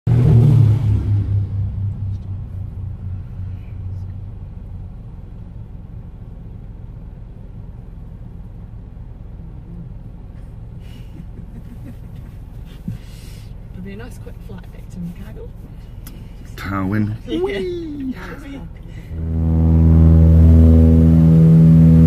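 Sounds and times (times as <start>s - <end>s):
propeller aircraft passing overhead: 18.8s - 22.0s.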